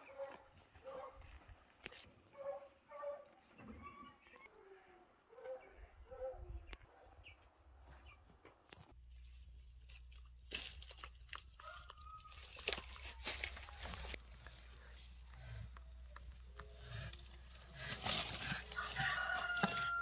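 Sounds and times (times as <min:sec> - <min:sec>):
footsteps through dry straw: 0:09.0 - 0:14.2, 0:17.7 - 0:20.0.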